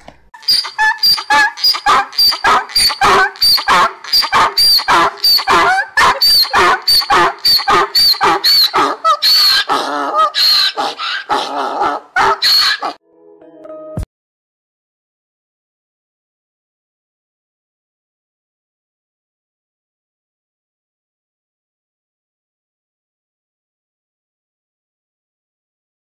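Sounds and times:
donkey braying: 0.4 - 13.0.

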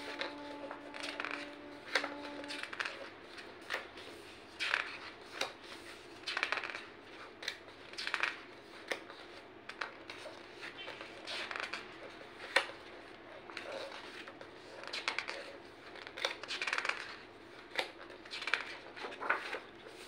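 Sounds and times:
book pages turning: 0.0 - 12.8.

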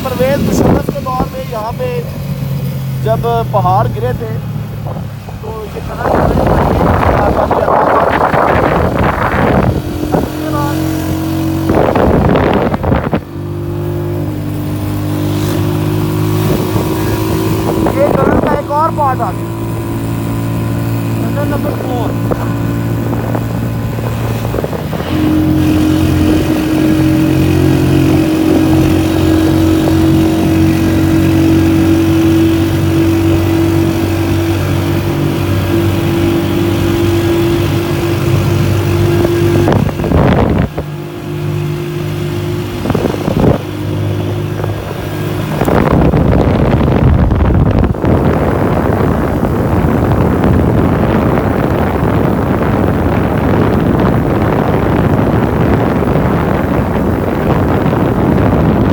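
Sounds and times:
motorcycle engine running: 0.0 - 58.9
wind buffeting microphone: 0.0 - 58.9.

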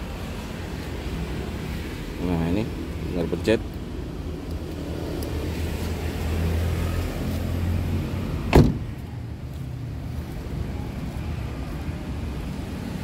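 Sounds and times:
car door shutting: 8.4 - 9.0.

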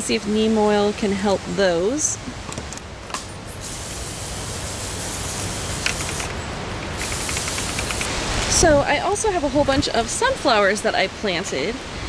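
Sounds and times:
pressure sprayer hissing: 3.5 - 8.4.

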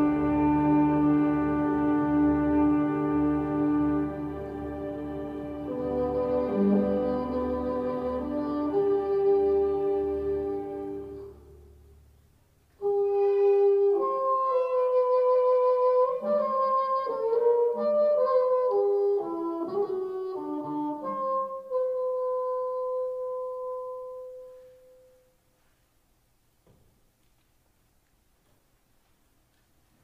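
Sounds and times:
wind and brass held chords: 0.0 - 12.0.

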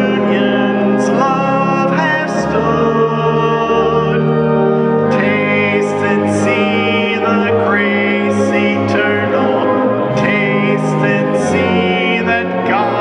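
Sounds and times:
instrumental accompaniment: 0.0 - 13.0
voices singing a hymn: 0.0 - 13.0.

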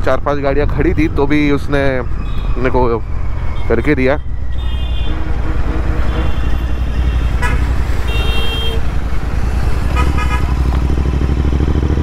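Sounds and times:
vehicle horns tooting: 4.6 - 8.9, 9.9 - 10.6.

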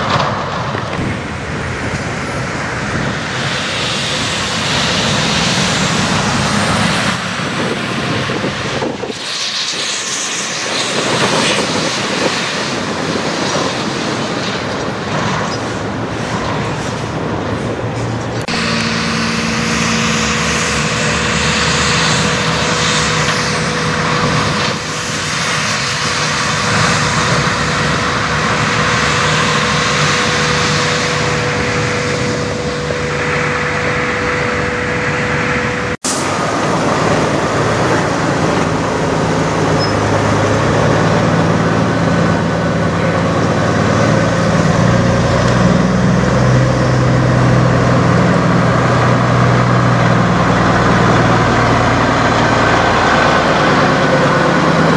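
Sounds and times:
semi-truck diesel engine running: 0.0 - 54.9.

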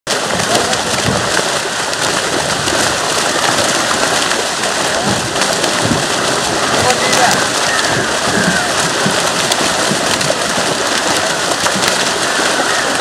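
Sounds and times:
fish thrashing and splashing in net: 0.1 - 13.0.

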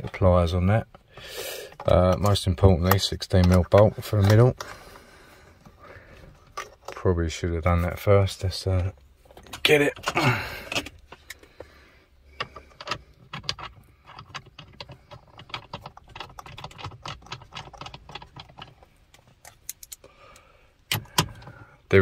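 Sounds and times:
bolt clicking and rattling: 12.3 - 20.1.

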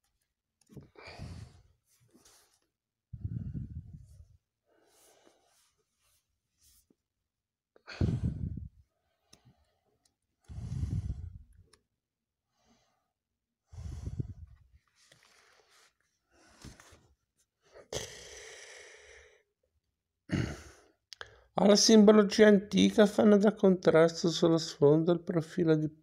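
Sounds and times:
book pages rustling: 1.8 - 2.8, 14.8 - 17.2
microphone handling noise: 3.2 - 4.3, 8.0 - 8.7.

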